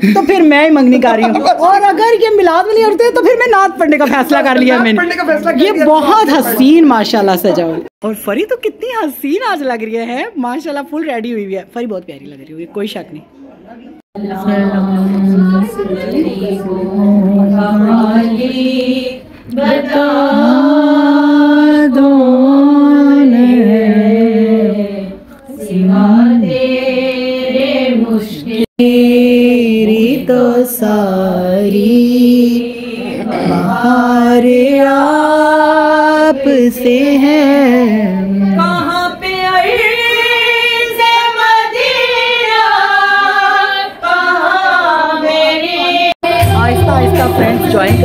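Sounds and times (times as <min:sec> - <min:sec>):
woman singing unaccompanied: 0:14.2 - 0:48.0.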